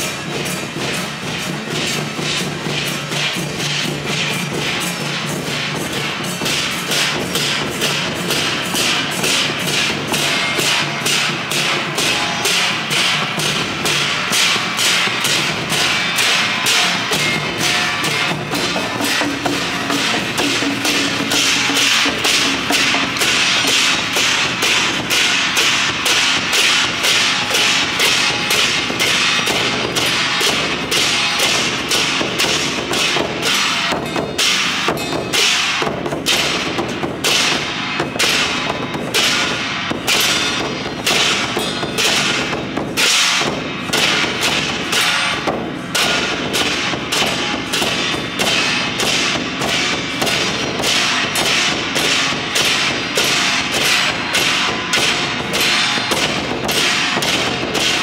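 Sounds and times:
drums and cymbals beating fast: 0.0 - 58.0.

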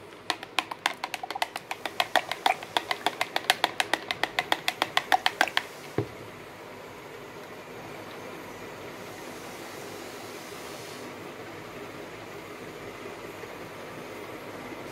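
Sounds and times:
spatula tapping plastic beaker: 0.1 - 6.1.

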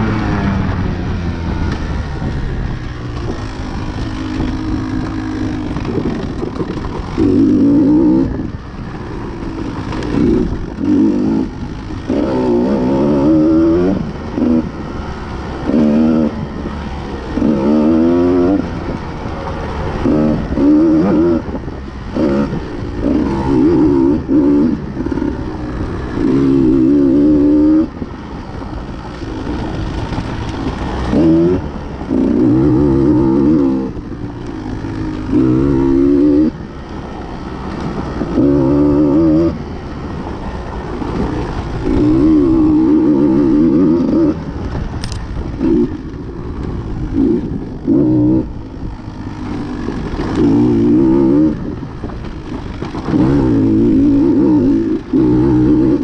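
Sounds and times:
dirt bike engine revving: 0.0 - 56.0
rattling and scraping: 3.0 - 12.9.

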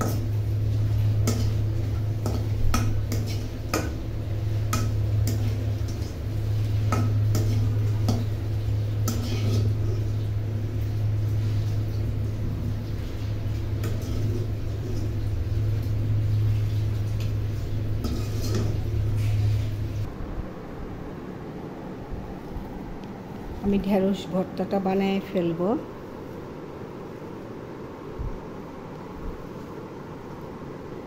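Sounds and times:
metal spoon scraping a pan: 0.0 - 4.0, 4.7 - 8.4, 9.0 - 10.1, 13.8 - 14.5, 18.0 - 19.7
chillies frying in oil: 0.0 - 20.1
low hum: 0.0 - 31.0.

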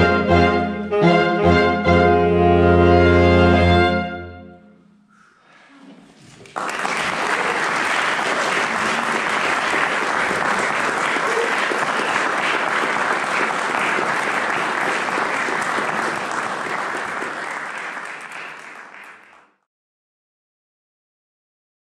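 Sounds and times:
audience applauding: 6.2 - 19.6.

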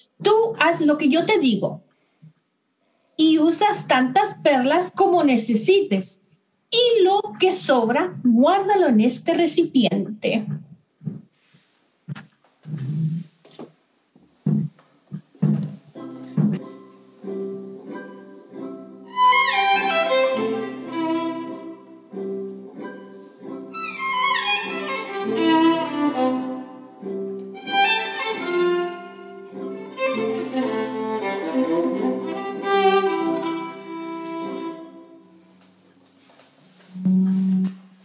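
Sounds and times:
solo violin playing: 19.1 - 22.2, 23.7 - 35.4.

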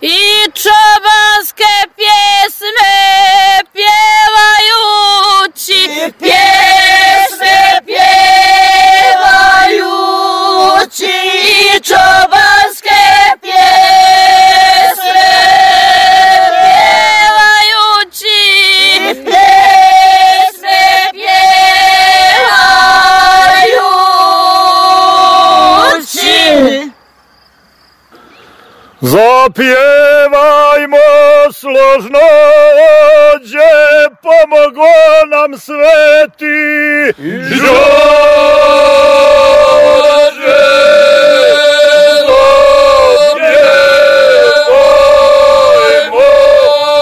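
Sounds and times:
women singing unaccompanied: 0.0 - 26.9, 37.3 - 47.0.

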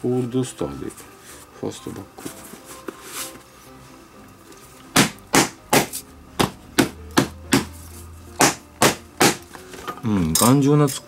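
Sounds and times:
sharp smacks into leather mitt: 5.0 - 7.7.

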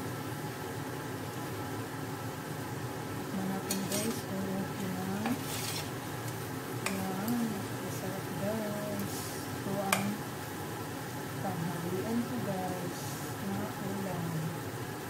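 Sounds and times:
low sizzle: 0.0 - 15.0
metal spoon scraping a pot: 3.7 - 4.3, 5.2 - 6.0.

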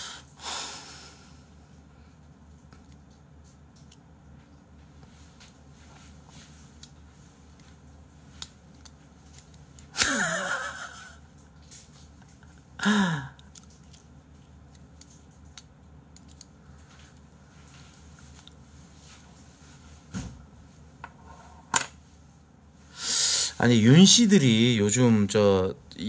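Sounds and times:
man laughing breathily: 0.0 - 1.4, 10.0 - 11.3, 12.8 - 13.4.

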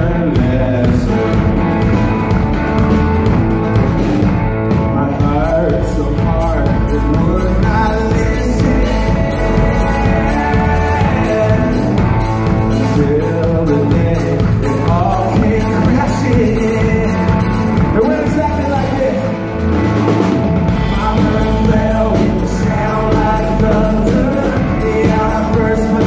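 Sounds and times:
man singing: 0.0 - 2.3, 4.8 - 19.6, 20.6 - 26.0
electric guitar: 0.0 - 26.0
percussive beat: 0.0 - 26.0
strummed acoustic guitar: 0.0 - 26.0
upright bass: 0.0 - 26.0.

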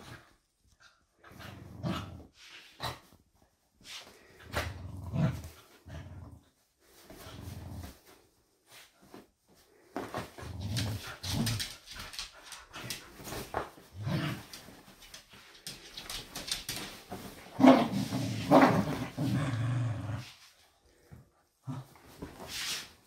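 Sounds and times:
scratching and rustling fabric: 0.0 - 21.1, 21.7 - 23.0
dogs growling and grunting: 1.2 - 3.2, 4.4 - 6.5, 13.9 - 14.7, 17.5 - 20.4.

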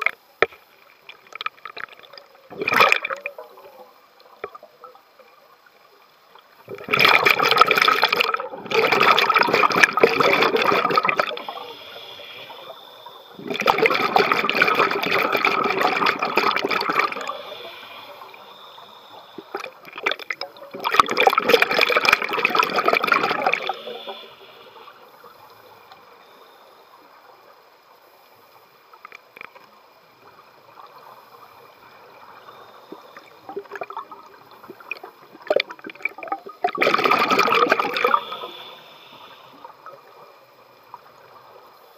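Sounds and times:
scuba regulator bubbling underwater: 1.3 - 5.0, 6.6 - 24.6, 32.9 - 39.4
faint clicks and pops: 4.2 - 5.0, 28.9 - 29.8.

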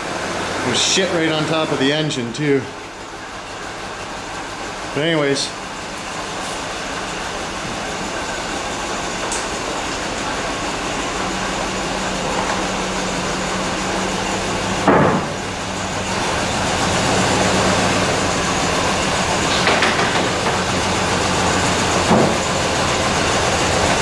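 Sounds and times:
rough van engine running: 0.0 - 24.0.

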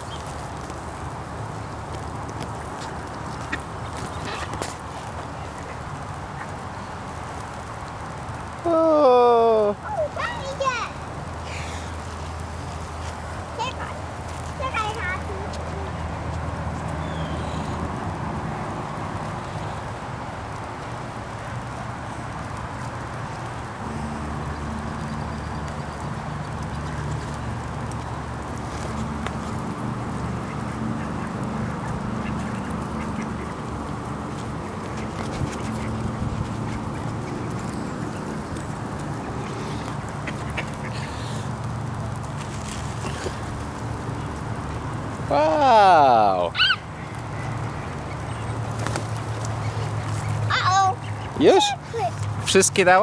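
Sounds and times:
outdoor noise: 0.0 - 53.0
vehicle engine humming: 0.0 - 53.0
deeper engine note: 23.8 - 34.2
ducks quacking: 29.4 - 41.5.

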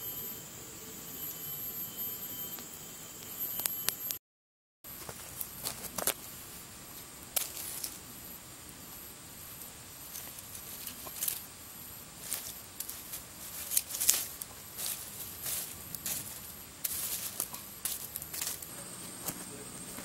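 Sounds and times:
campfire crackling: 4.9 - 20.0
faint high hiss: 5.2 - 20.0.

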